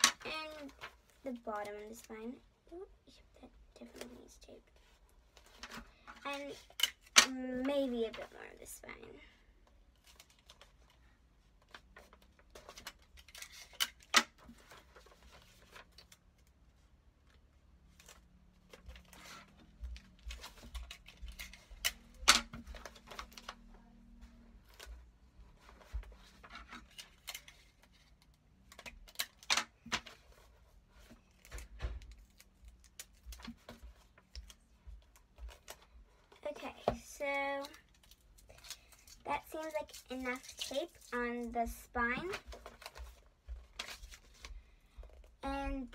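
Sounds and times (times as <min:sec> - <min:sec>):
paper rustling: 0:10.0 - 0:16.4, 0:17.8 - 0:45.2.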